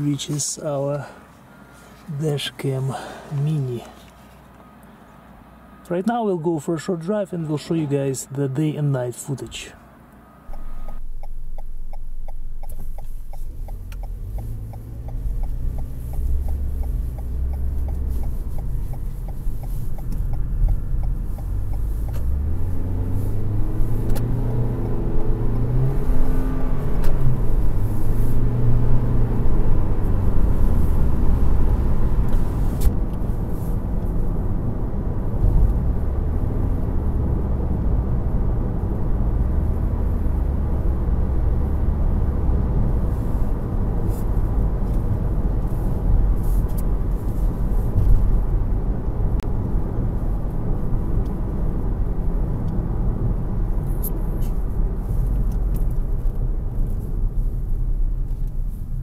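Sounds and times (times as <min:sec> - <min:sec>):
car cabin road rumble: 0:00.0 - 0:59.0
light ticking: 0:10.5 - 0:22.3.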